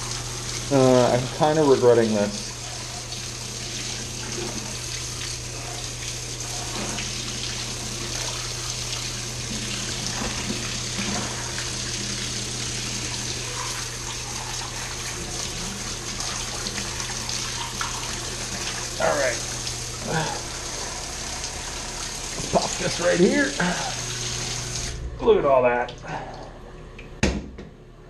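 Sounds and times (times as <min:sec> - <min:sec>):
shower spray splashing: 0:00.0 - 0:25.0
low hum: 0:23.6 - 0:28.0.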